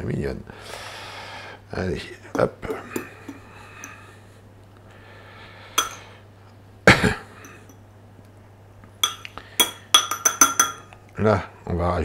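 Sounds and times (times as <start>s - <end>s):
metal fork clinking on ceramic bowl: 2.4s - 4.0s, 5.8s - 6.1s, 9.0s - 11.0s.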